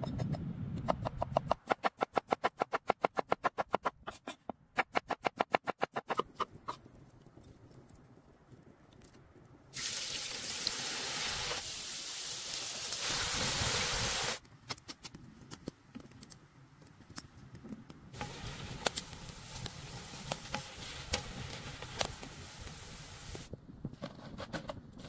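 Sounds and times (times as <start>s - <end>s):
potato sizzling in hot oil: 9.8s - 14.4s
crackling pops: 14.4s - 23.5s.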